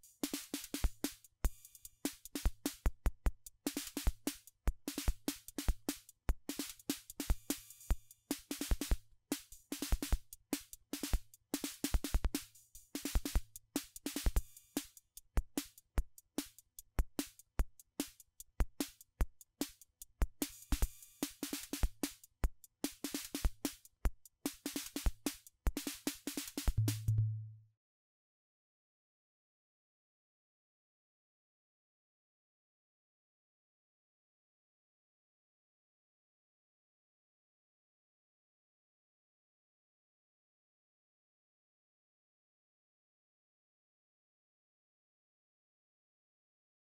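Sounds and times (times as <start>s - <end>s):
drum machine beat: 0.0s - 27.6s.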